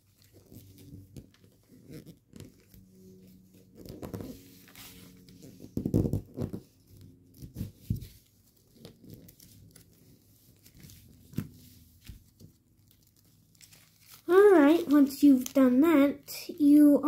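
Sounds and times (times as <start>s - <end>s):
foil paper crinkling: 7.4s - 15.8s.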